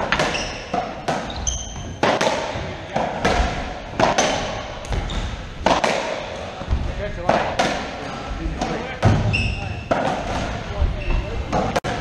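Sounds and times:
racquet strikes cracking: 0:00.0 - 0:05.0, 0:05.6 - 0:06.4, 0:07.2 - 0:08.0
ball hitting court walls: 0:00.0 - 0:10.6, 0:11.5 - 0:12.0
shoe squeak on wooden floor: 0:00.1 - 0:02.0, 0:05.0 - 0:05.4, 0:09.2 - 0:09.9, 0:10.9 - 0:11.4.

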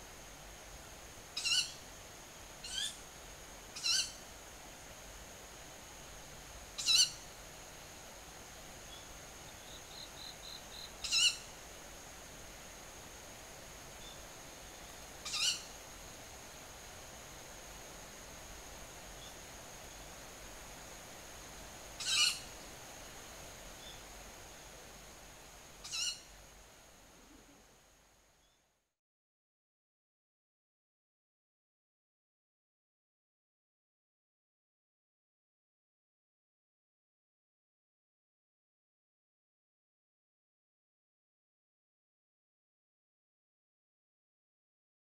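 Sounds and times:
young owl hoarse calls: 0:25.8 - 0:26.2.

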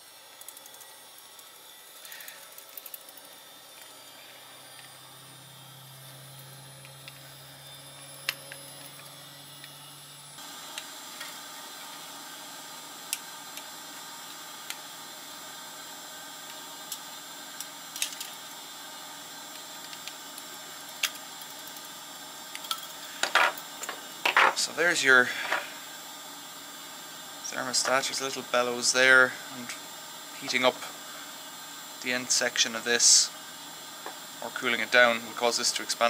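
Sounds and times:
steady hiss: 0:19.2 - 0:36.0.

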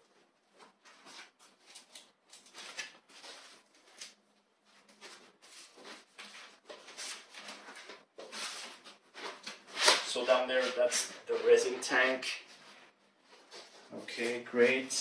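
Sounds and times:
packaging rustles: 0:00.5 - 0:11.6.

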